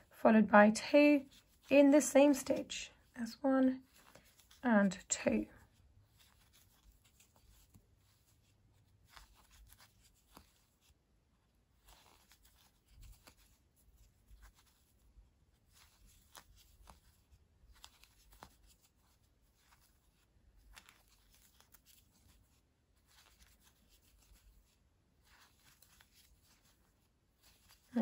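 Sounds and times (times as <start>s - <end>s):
crochet hook clicks and yarn rustles: 15.7s - 22.3s.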